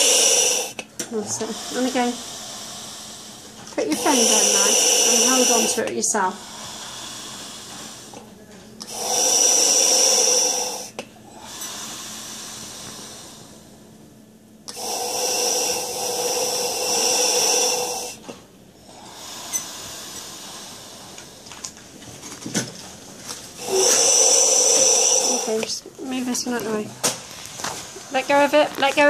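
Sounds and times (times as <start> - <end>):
person breathing out: 0.0 - 0.8, 1.4 - 8.2, 8.8 - 13.7, 14.7 - 18.3, 18.9 - 21.4, 23.6 - 25.8
gas valve hissing on inhalation: 0.0 - 13.7, 14.6 - 21.7, 23.5 - 25.9.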